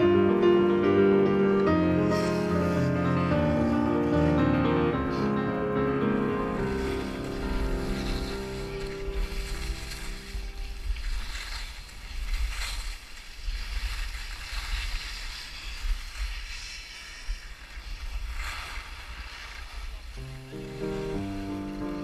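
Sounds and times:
background music: 0.0 - 11.5, 20.2 - 22.0
skis swishing on crusty snow: 0.0 - 22.0
wind buffeting the microphone: 6.3 - 22.0.

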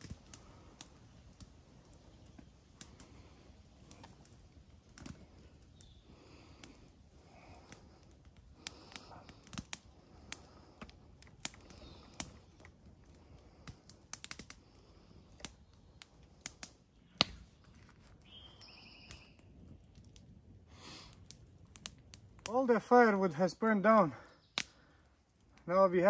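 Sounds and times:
campfire crackling and popping: 0.0 - 26.0.

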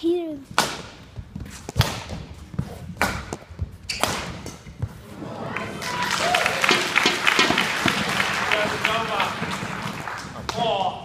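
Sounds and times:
racket hitting shuttlecock: 0.4 - 5.0, 6.7 - 8.1
crowd cheering and chatter: 5.0 - 11.0.

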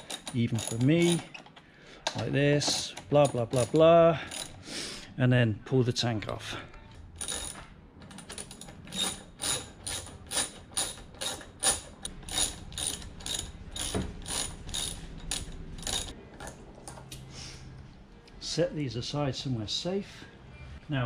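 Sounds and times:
socket ratchet clicking: 0.0 - 4.6, 7.2 - 16.2.

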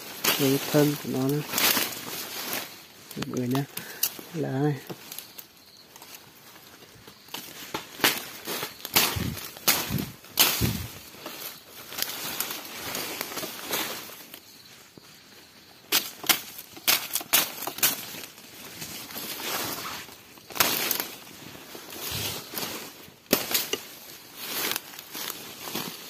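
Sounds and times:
rustling leaves: 0.0 - 26.0
plant stems snapping and cracking: 0.1 - 4.2, 7.3 - 13.6, 15.9 - 18.4, 20.5 - 21.2, 23.3 - 26.0.

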